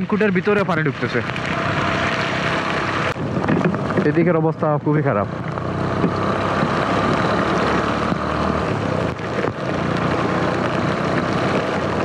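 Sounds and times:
motorcycle engine running: 0.0s - 12.0s
raindrops ticking: 0.0s - 12.0s
wind and rain noise: 0.0s - 12.0s.

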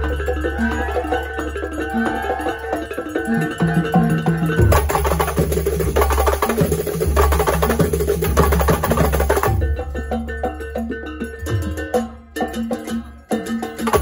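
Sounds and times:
ringing pitched notes: 0.0s - 4.8s
frame drums in fast rhythm: 0.0s - 14.0s
deep barrel drum beats: 3.6s - 12.0s.

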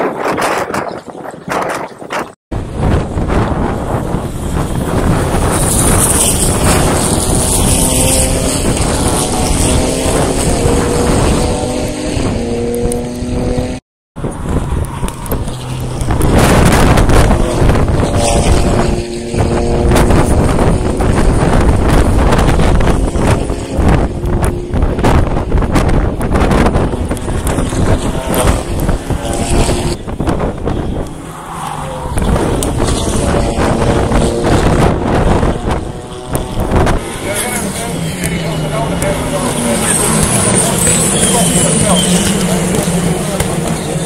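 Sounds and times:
racing cars passing at speed: 2.6s - 44.0s.

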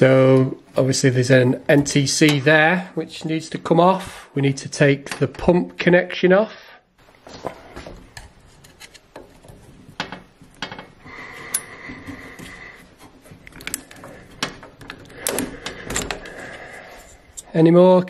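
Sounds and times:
connector and wires rubbing: 7.3s - 17.5s.

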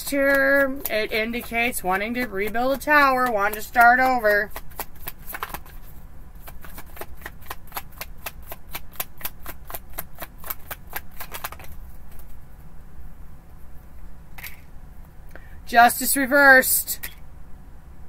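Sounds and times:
cards being shuffled: 0.2s - 12.4s.

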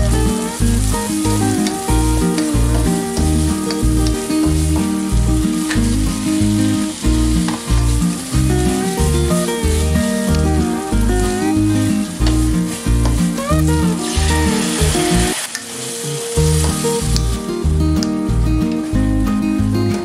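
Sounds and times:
paste sizzling in hot oil: 0.0s - 19.0s
background music with steady beat: 0.0s - 20.0s
spatula scraping frying pan: 11.8s - 16.8s.

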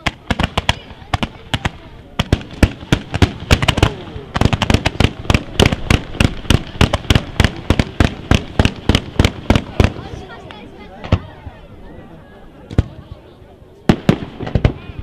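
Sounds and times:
fireworks rapid sharp bangs: 0.0s - 10.2s, 13.9s - 15.0s.

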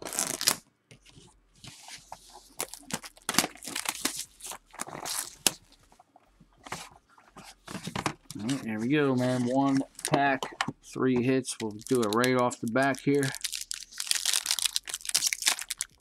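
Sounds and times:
knife tearing plastic shrink wrap: 0.0s - 0.6s, 2.6s - 5.6s, 13.0s - 16.0s.

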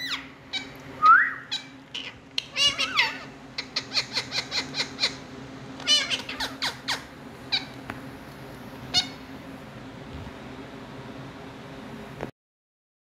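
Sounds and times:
parakeet squawk: 0.0s - 0.7s, 1.4s - 7.8s, 8.9s - 9.2s
parakeet chirps: 0.0s - 7.8s, 8.9s - 9.2s.

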